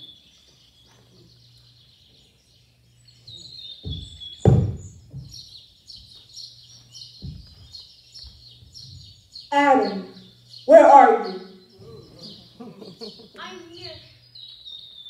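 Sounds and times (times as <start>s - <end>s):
birdsong chirping: 0.0s - 15.0s
thumps: 3.8s - 5.4s.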